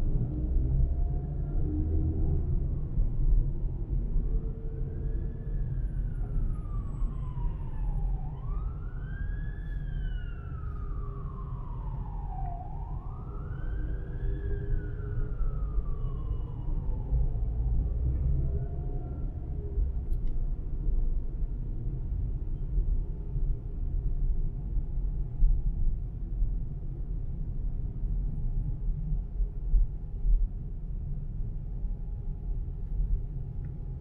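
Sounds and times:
low road rumble: 0.0s - 34.0s
emergency siren wailing: 4.4s - 20.0s.

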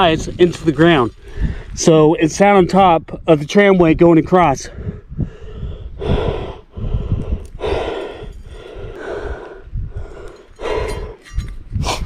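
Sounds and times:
man breathing hard: 1.2s - 1.8s, 4.7s - 12.0s.

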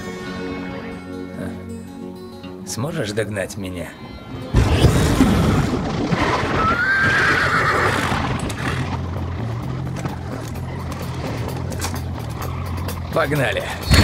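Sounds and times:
roaring flames: 4.5s - 13.0s
horse neighing: 4.6s - 9.2s.

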